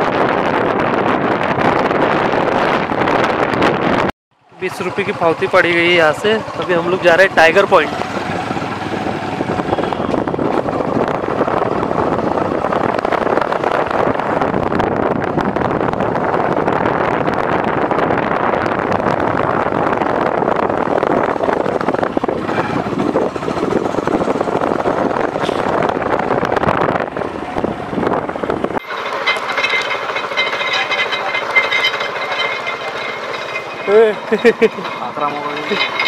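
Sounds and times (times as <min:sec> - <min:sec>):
wind on microphone: 0:00.0 - 0:04.1, 0:07.9 - 0:28.8
engine running: 0:00.0 - 0:36.0.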